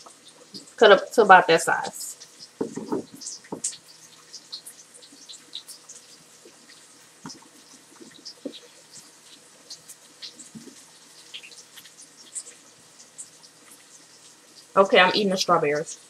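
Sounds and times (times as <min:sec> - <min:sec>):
faint crackling: 0:01.8 - 0:16.0
soft knocks on a plate: 0:02.6 - 0:03.7.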